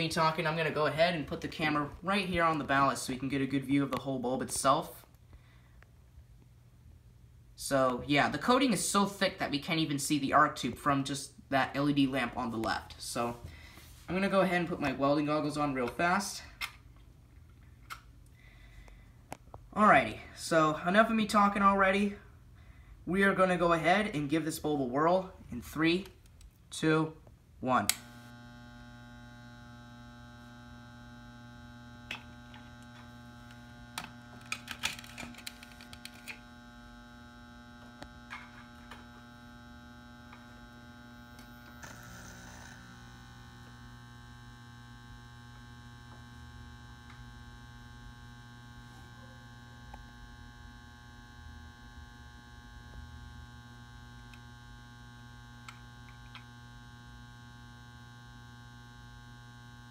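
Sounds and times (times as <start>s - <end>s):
lamp ballast humming: 27.6s - 59.9s
clicks and crackles: 32.0s - 36.5s.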